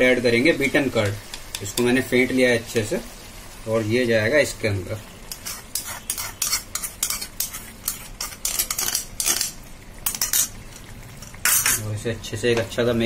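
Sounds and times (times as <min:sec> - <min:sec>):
wooden spatula scraping bowl: 0:05.3 - 0:09.0.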